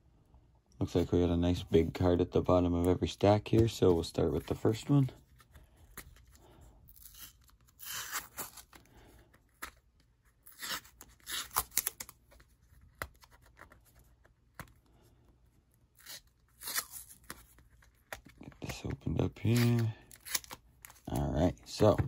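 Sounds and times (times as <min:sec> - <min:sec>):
tape ripping: 0:06.9 - 0:08.8, 0:10.4 - 0:12.2, 0:16.0 - 0:18.3, 0:19.4 - 0:21.2
plastic handling: 0:17.2 - 0:22.0.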